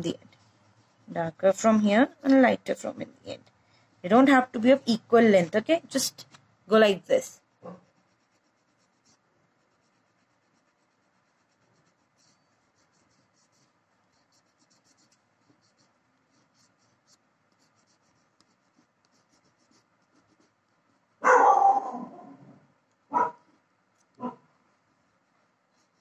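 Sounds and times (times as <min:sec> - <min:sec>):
crayon scratching on paper: 0:00.0 - 0:02.0, 0:07.0 - 0:21.2, 0:25.6 - 0:26.0.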